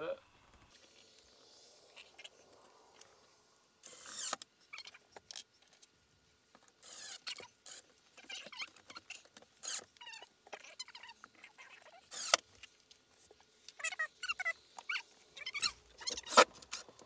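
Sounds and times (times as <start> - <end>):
cordless drill driving screws: 3.8 - 4.4, 6.8 - 7.9, 12.1 - 12.4
screws squeaking in wood: 3.8 - 5.0, 6.8 - 12.4, 13.8 - 16.9.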